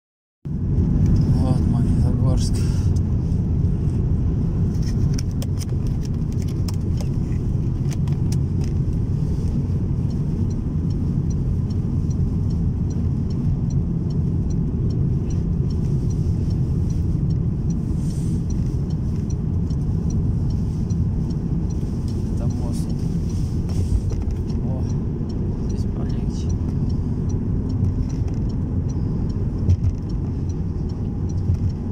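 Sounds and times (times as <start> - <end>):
car interior rumble: 0.5 - 31.9
faint regular ticking: 5.1 - 31.9.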